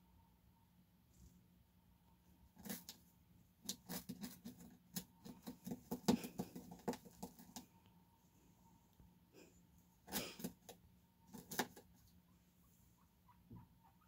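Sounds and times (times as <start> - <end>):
guinea pig scurrying and rustling: 2.4 - 7.8, 10.1 - 12.2.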